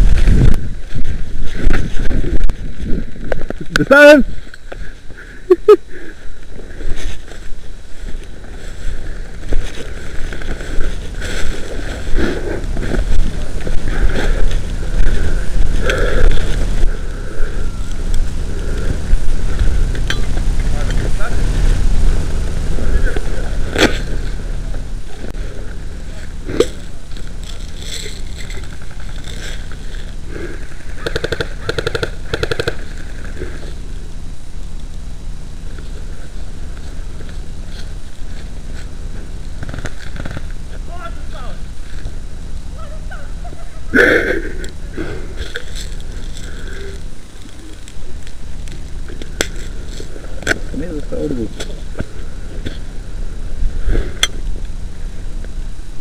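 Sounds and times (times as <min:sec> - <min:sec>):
wind buffeting microphone: 0:00.0 - 0:03.7
rustling of dry grass and leaves: 0:00.0 - 0:56.0
airsoft gun rapid-fire bursts: 0:30.9 - 0:32.9.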